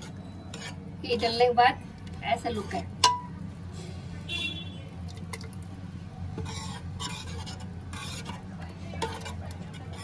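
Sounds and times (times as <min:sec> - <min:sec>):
ladle scraping a pan: 0:00.0 - 0:01.2, 0:06.3 - 0:10.0.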